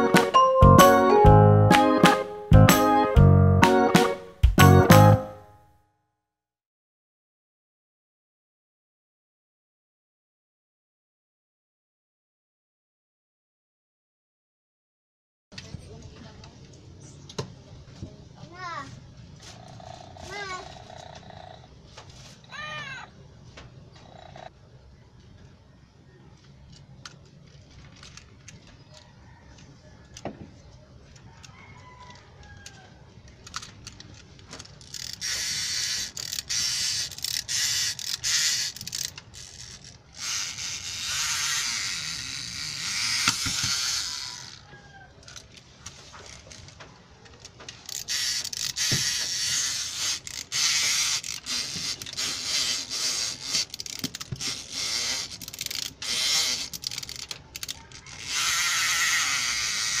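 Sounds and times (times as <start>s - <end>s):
toy gear ratcheting and whirring: 19.4s - 21.3s, 26.7s - 28.8s, 32.6s - 44.6s, 45.2s - 60.0s.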